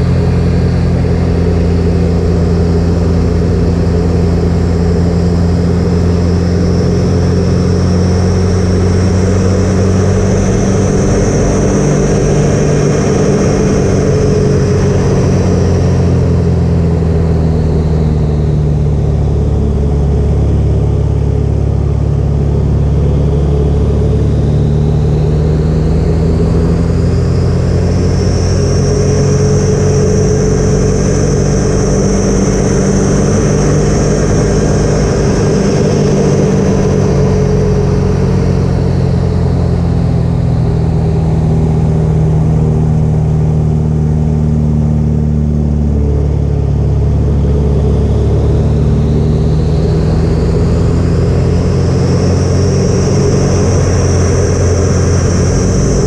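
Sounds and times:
wind rush: 0.0 - 43.2, 45.2 - 56.0
high whine: 0.0 - 56.0
propeller engine running: 0.0 - 56.0.

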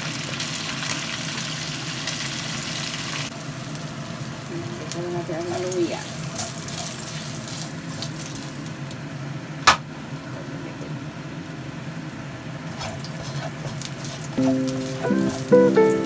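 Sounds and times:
frying hiss in wok: 0.0 - 16.0
sharp knock: 9.6 - 9.9.

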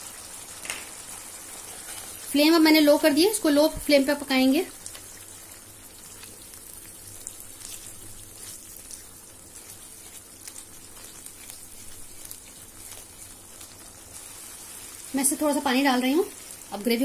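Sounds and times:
gravy sizzling in a pan: 0.0 - 17.0
spatula stirring: 1.0 - 2.6, 4.8 - 17.0.

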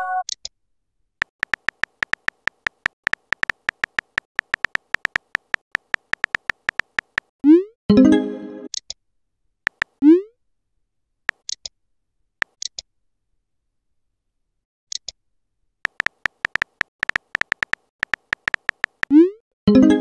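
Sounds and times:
on-screen keyboard clicks: 1.2 - 7.3, 9.7 - 10.1, 12.4 - 12.8, 15.8 - 19.3
soft taps: 1.4 - 7.3.

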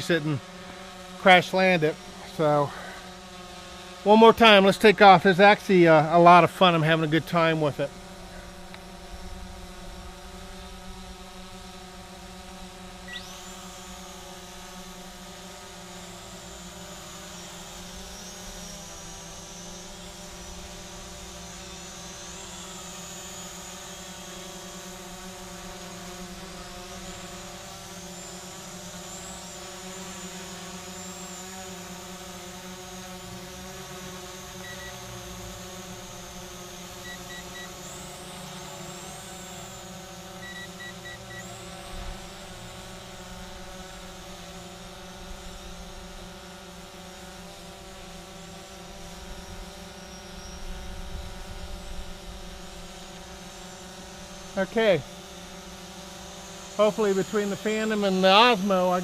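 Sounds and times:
drone propellers whining: 0.0 - 59.0
steady lower hum: 0.0 - 59.0
short electronic beeps: 34.6 - 35.0, 37.0 - 37.8, 40.4 - 41.5.

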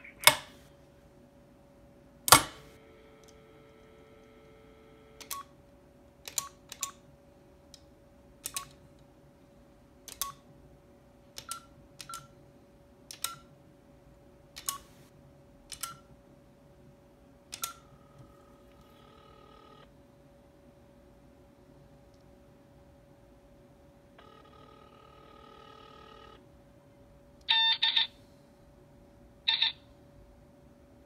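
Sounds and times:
metal keypad button clicks: 2.3 - 2.6
steady phone tone: 2.8 - 5.2, 18.0 - 19.9, 24.2 - 26.4, 27.5 - 28.1
short electronic beeps: 27.5 - 28.1, 29.5 - 29.8.

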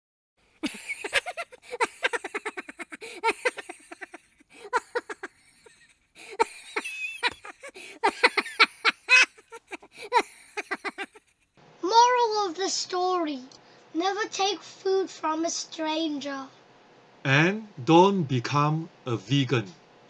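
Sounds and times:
high-pitched laughter: 0.6 - 11.3.

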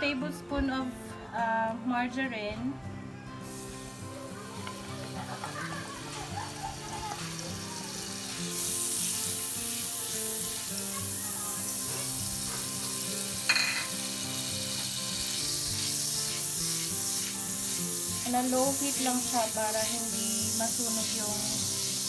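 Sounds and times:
margarine sizzling in a wok: 3.4 - 22.0
spatula hitting pan: 13.5 - 14.0.

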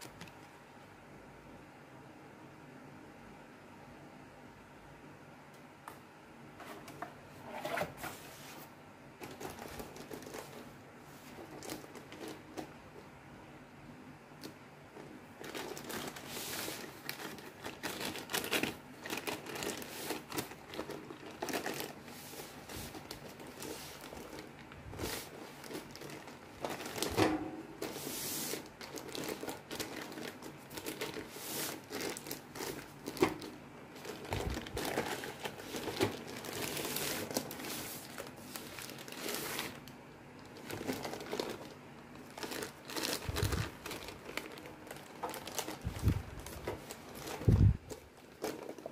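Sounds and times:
plastic wrapping crinkling: 9.2 - 13.1, 14.4 - 48.9.

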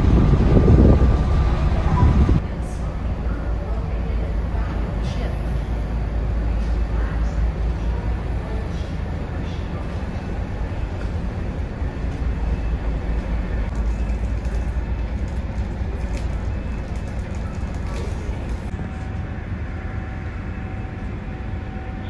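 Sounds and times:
ferry engines droning: 0.0 - 22.0.

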